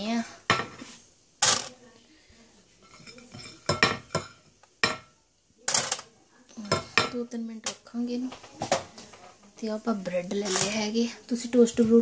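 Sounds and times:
metal kitchenware clattering: 0:00.5 - 0:01.8, 0:02.8 - 0:05.1, 0:05.7 - 0:06.1, 0:10.4 - 0:10.9.

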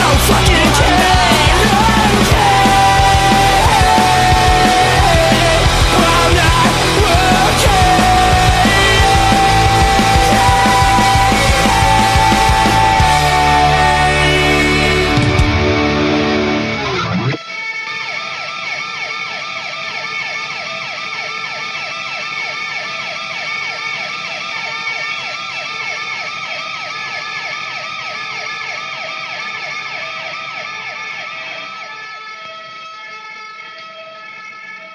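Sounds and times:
siren yelping: 0:00.9 - 0:18.4.

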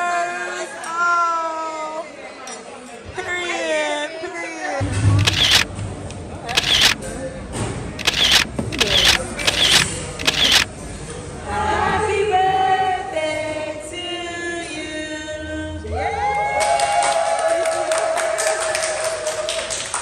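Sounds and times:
group singing: 0:11.4 - 0:15.7.

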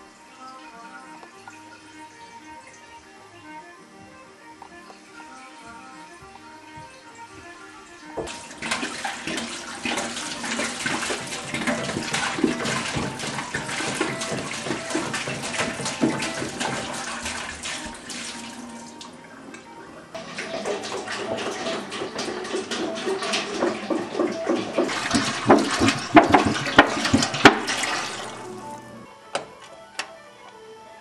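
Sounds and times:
water pouring into container: 0:08.1 - 0:19.3, 0:20.1 - 0:29.1.

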